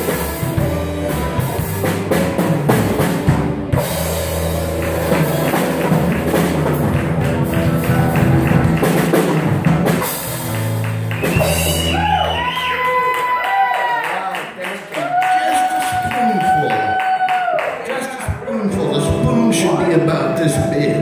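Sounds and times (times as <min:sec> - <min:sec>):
low bass figure: 0:00.0 - 0:11.9, 0:18.7 - 0:21.0
drum kit with cymbals: 0:00.0 - 0:12.8
electric guitar: 0:00.0 - 0:13.0, 0:18.7 - 0:21.0.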